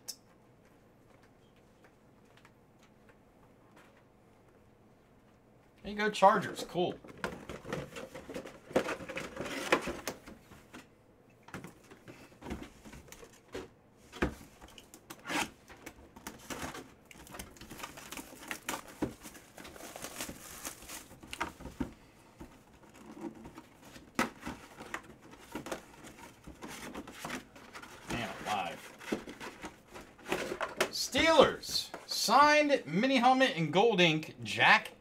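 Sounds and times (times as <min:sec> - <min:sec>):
cardboard and plastic rustling: 0:06.7 - 0:32.1.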